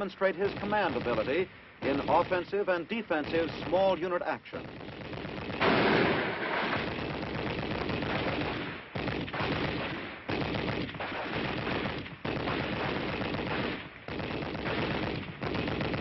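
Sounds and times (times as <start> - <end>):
rapid gunfire bursts: 0.0 - 16.0.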